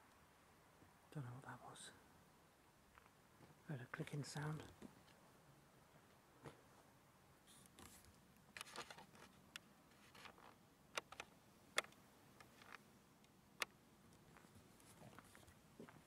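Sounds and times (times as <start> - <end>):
footsteps scuffing on a path: 14.3 - 16.0.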